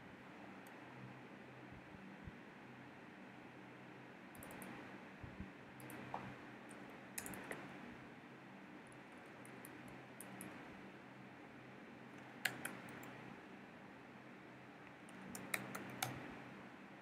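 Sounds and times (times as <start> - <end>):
faint steady hum: 0.0 - 17.0
keyboard keystrokes: 7.2 - 7.6, 12.3 - 13.2, 15.1 - 16.3.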